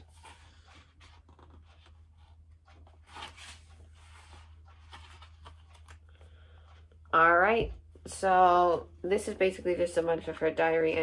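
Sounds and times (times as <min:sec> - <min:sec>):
paper pages rustling: 0:00.0 - 0:06.9
low steady hum: 0:00.0 - 0:11.0.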